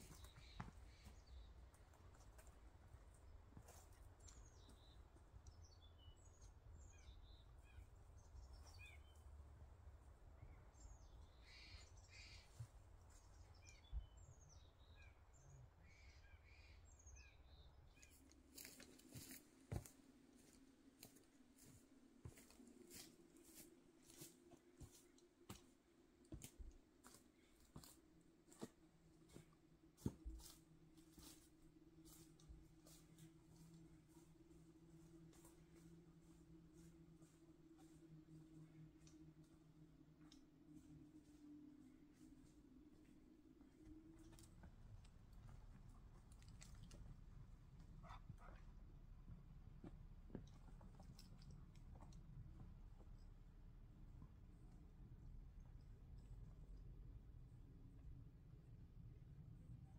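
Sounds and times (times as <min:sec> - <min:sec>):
faint steady hum: 0:00.0 - 0:59.9
footsteps crunching on snow: 0:18.4 - 0:25.7.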